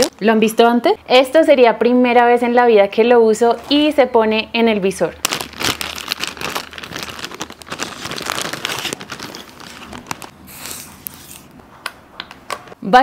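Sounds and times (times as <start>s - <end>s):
plastic bag crinkling: 0.0s - 0.3s, 5.2s - 11.5s.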